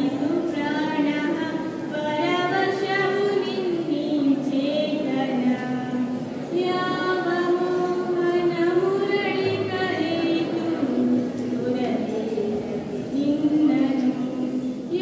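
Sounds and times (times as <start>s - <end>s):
girl singing into a microphone: 0.0s - 15.0s.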